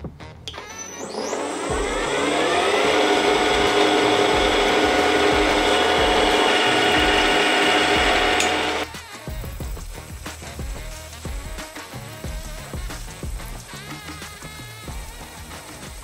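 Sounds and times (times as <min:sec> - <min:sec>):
milling machine motor whine: 0:00.5 - 0:08.9.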